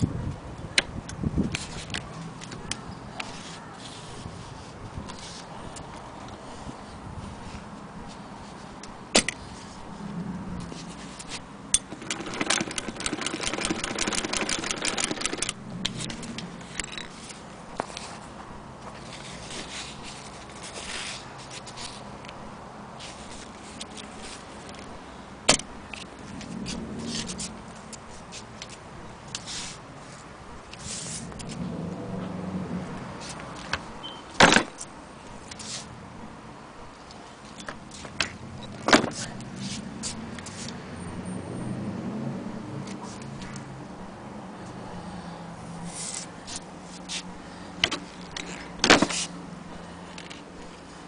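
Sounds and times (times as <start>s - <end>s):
handling rubbing and scraping: 1.4s - 32.3s, 32.9s - 36.0s, 36.8s - 40.8s, 42.9s - 43.6s, 45.7s - 51.0s
sewing machine clicks: 11.8s - 15.6s
sewing machine clatter: 11.9s - 15.6s.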